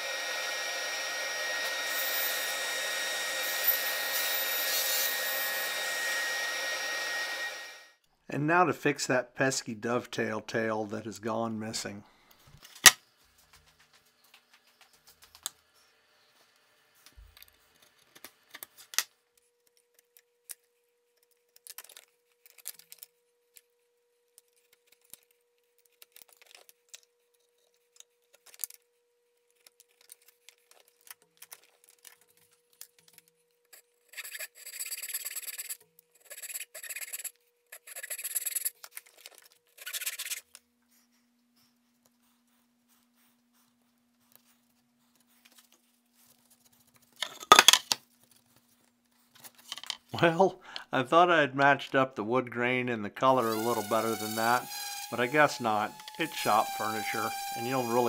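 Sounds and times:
loud rasping strokes on wood: 53.4 - 58.0.

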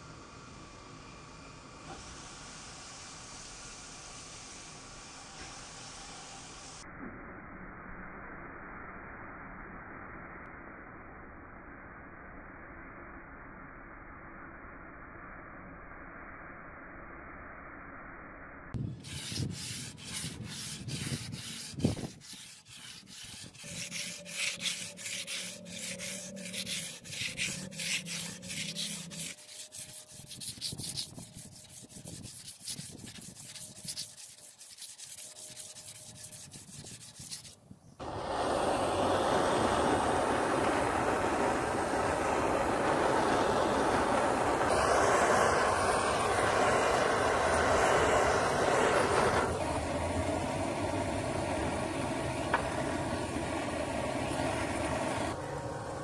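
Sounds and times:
abrasive rubbing on steel blade: 19.0 - 37.6.

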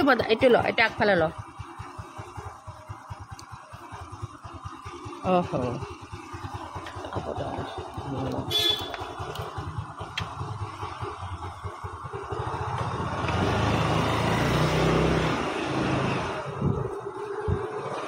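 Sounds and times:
motorcycle engine and road noise: 0.0 - 18.0
wind buffeting microphone: 16.5 - 17.7.

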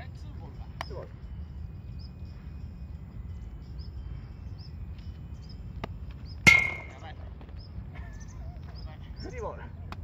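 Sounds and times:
baseball smacking into mitt: 5.8 - 7.0.

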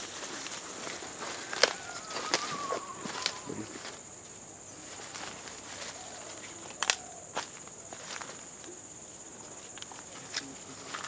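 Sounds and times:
twigs cracking: 0.0 - 4.0, 5.1 - 8.3
footsteps through undergrowth: 0.0 - 11.0
high-pitched insect drone: 0.0 - 11.0.

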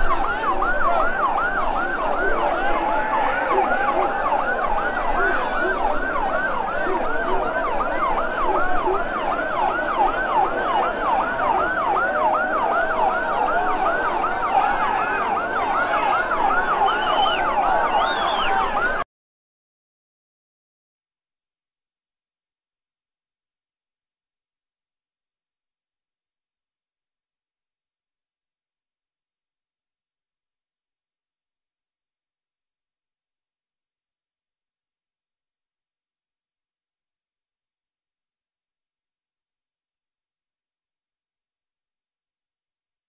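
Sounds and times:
fire truck siren yelping: 0.0 - 19.0.

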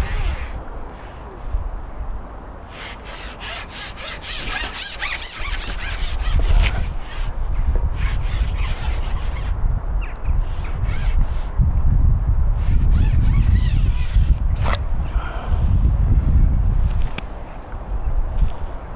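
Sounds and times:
fishing pole rubbing and scraping: 0.0 - 1.3, 2.7 - 9.6, 10.4 - 11.5, 12.6 - 14.8.

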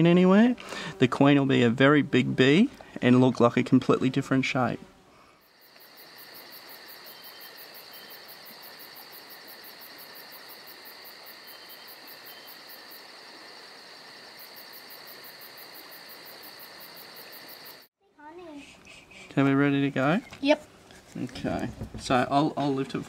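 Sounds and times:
insect trill: 5.4 - 17.9
pulsing insect chirp: 5.4 - 17.9.

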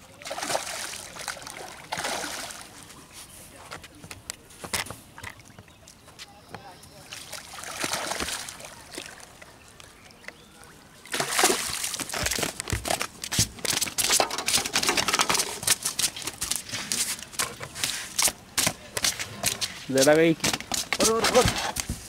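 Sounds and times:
fish splashing in water: 0.1 - 2.8, 7.1 - 9.5, 11.0 - 12.8.

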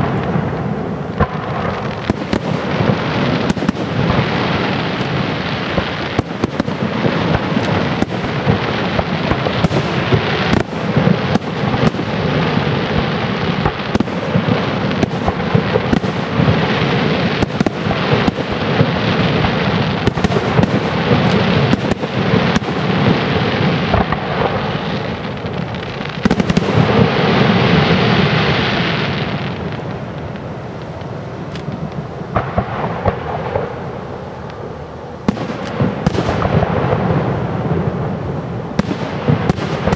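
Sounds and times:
firework shells bursting: 0.0 - 30.0, 35.2 - 37.1
fireworks crackling rumble: 0.0 - 39.9.

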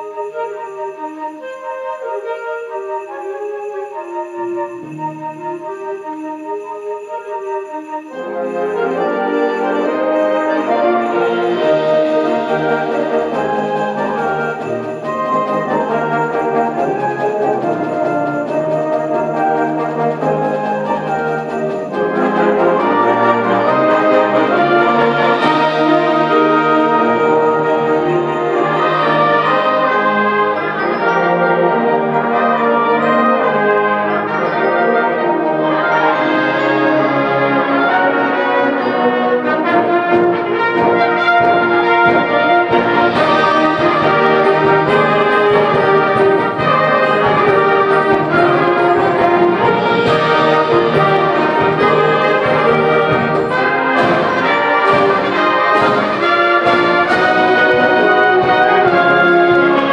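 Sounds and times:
brass sustained chords: 0.0 - 59.9
wind band playing: 0.0 - 59.9
percussion hits: 8.2 - 34.5, 36.2 - 59.9.

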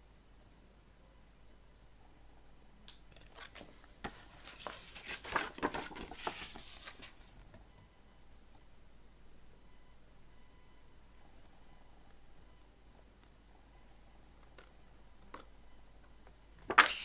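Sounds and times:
paper pages turning: 3.2 - 7.3, 16.7 - 17.0.

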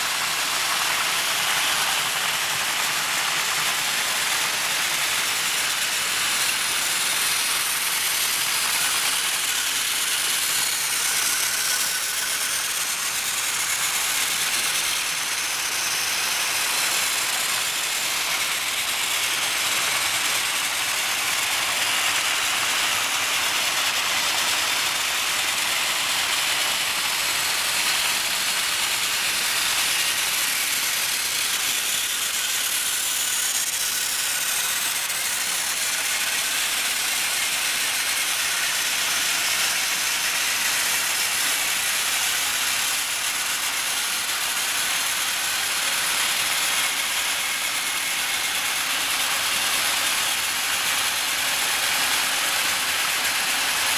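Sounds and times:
toy trains whirring and rattling: 0.0 - 53.9.

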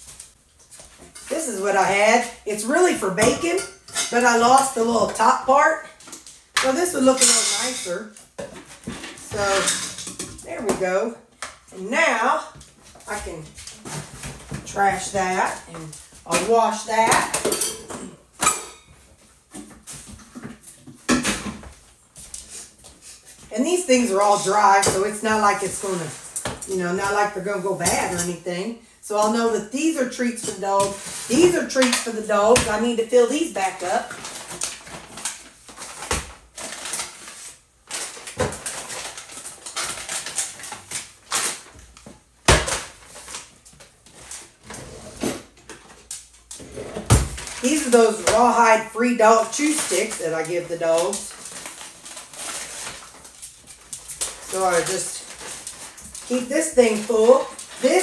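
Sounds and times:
plastic and paper bags crinkling: 11.7 - 17.4, 19.0 - 28.5, 29.1 - 44.8, 45.4 - 58.0.

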